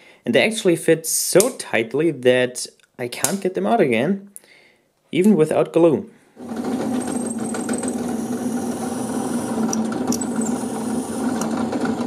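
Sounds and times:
drill press humming: 6.4s - 12.0s.

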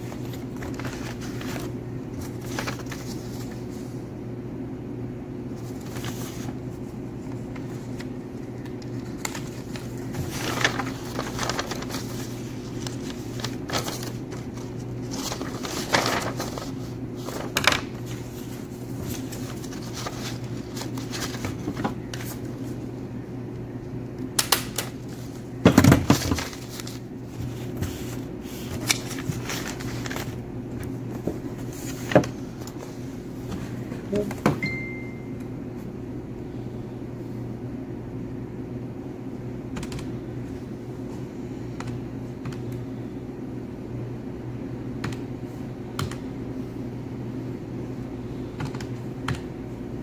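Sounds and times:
paper rustling: 0.0s - 4.0s, 5.6s - 22.8s, 24.8s - 34.3s
steady low hum: 0.0s - 50.0s.

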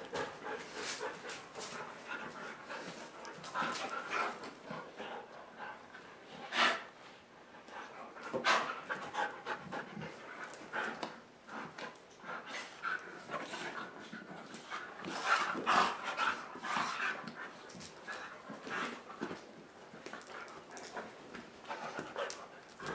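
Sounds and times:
dogs panting: 0.0s - 6.9s, 7.6s - 22.9s.

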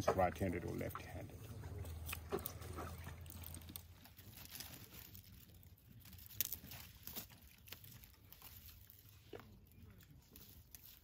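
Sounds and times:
elephant chewing: 0.0s - 11.0s.

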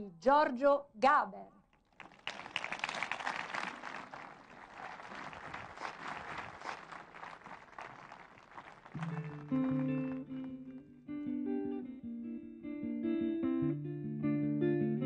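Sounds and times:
audience applauding: 1.8s - 10.8s.

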